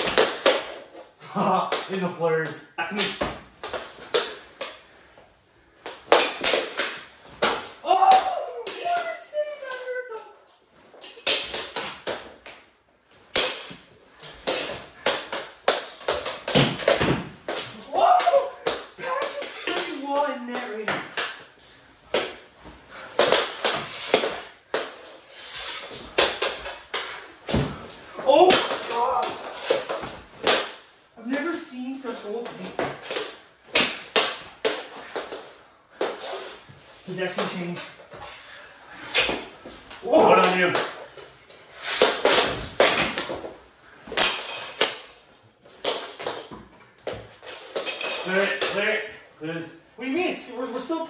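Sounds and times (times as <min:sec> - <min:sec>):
hockey sticks and puck clacking: 0:00.0 - 0:04.9, 0:05.8 - 0:10.3, 0:10.9 - 0:38.3, 0:39.0 - 0:49.1.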